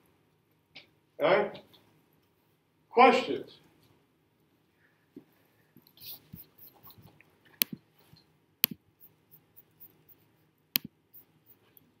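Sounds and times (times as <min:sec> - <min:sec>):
handling noise on recording device: 0:03.6 - 0:12.0
sharp clicks: 0:08.6 - 0:10.0, 0:10.8 - 0:11.3.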